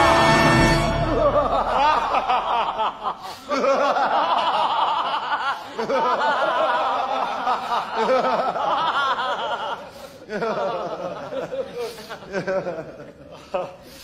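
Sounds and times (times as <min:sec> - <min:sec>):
group of people laughing: 0:01.0 - 0:14.0.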